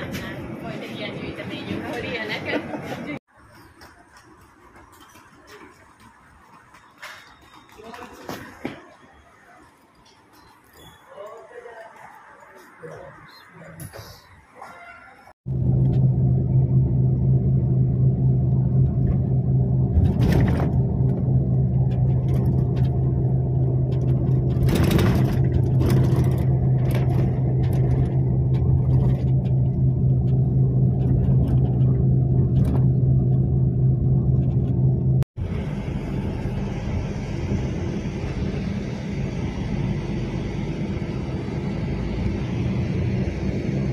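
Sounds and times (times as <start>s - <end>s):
bus engine drone: 0.0s - 4.9s, 15.5s - 43.9s
rattles: 19.9s - 35.2s.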